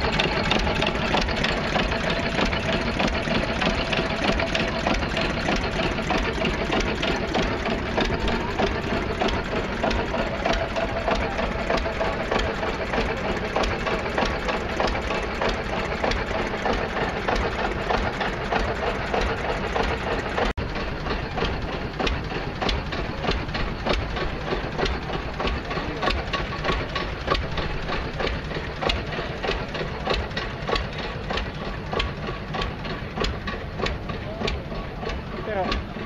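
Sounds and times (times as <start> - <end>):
old tractor engine knocking: 0.0 - 36.0.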